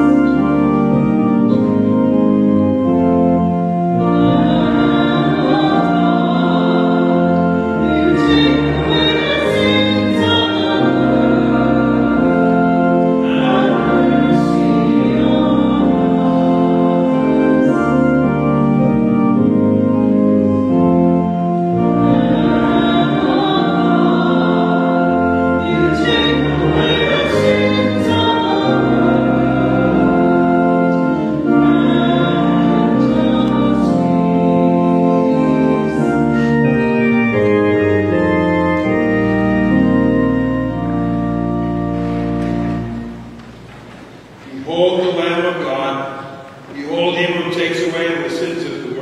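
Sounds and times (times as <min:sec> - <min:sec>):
church organ chords: 0:00.0 - 0:49.0
voices singing: 0:03.9 - 0:18.5, 0:21.8 - 0:37.3.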